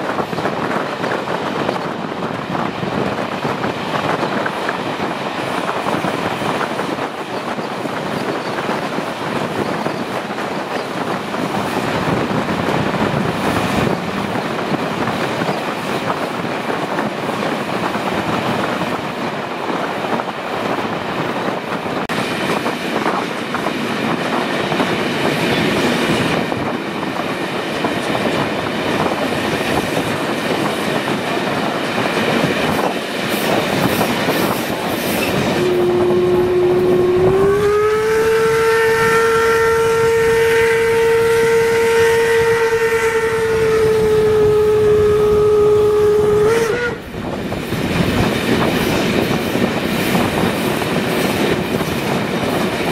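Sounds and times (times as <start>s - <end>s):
rail clatter: 0.0s - 45.4s, 46.0s - 52.9s
wind rush from train: 0.0s - 52.9s
steam locomotive whistle: 35.5s - 47.1s.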